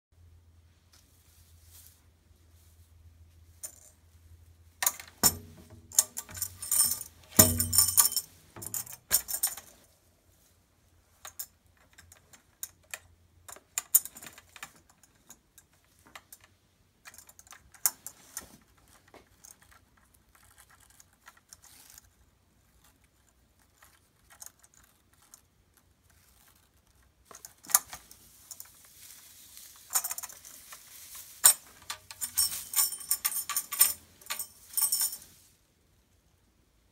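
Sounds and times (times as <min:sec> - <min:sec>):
tambourine jingling: 0:05.2 - 0:09.6.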